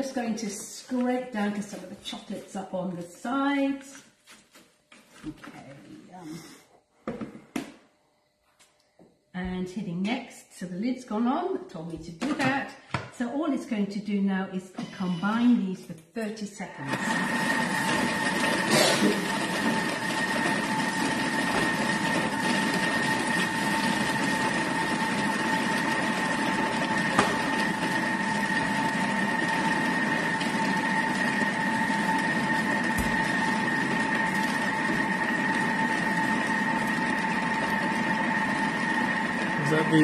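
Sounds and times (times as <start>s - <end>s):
kitchen mixer motor whining: 16.6s - 40.0s.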